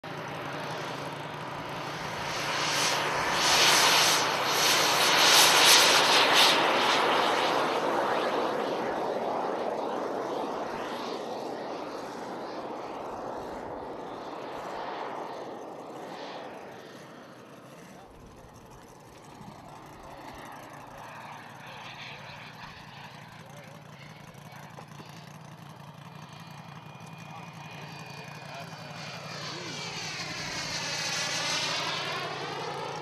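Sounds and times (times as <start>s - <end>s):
model jet turbine rushing hiss: 2.2s - 10.6s.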